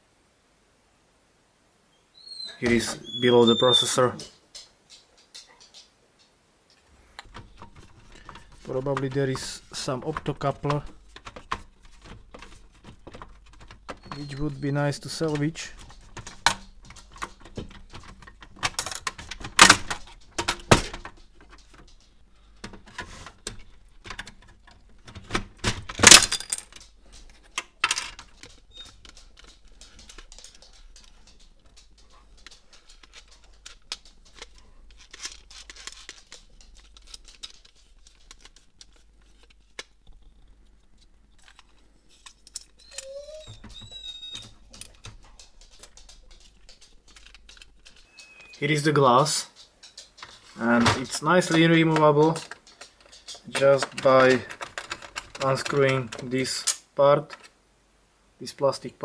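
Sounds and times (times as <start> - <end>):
plastic printer parts clattering: 7.2 - 42.8, 44.6 - 48.1, 49.9 - 57.5.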